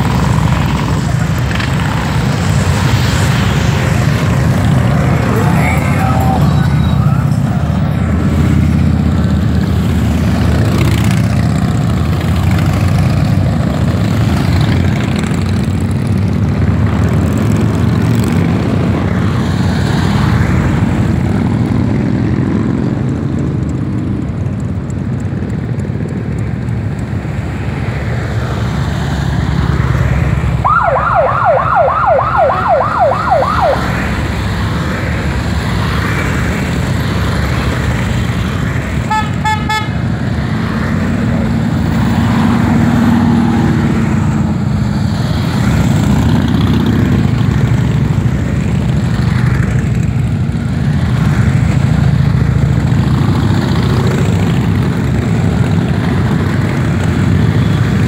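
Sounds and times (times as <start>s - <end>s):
motorcycle engines rumbling: 0.0s - 58.0s
siren-like yelp: 30.6s - 34.0s.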